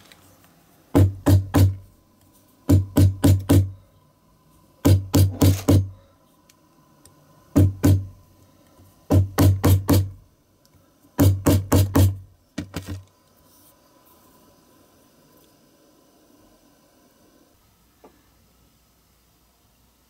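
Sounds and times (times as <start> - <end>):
hammer thuds on rubber stopper: 2.7 - 3.7, 4.8 - 5.9.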